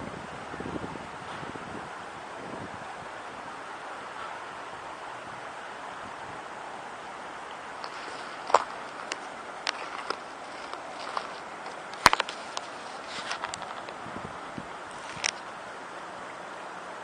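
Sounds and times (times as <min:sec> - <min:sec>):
river water flowing: 0:00.0 - 0:17.0
sharp clicks and knocks: 0:07.8 - 0:14.0.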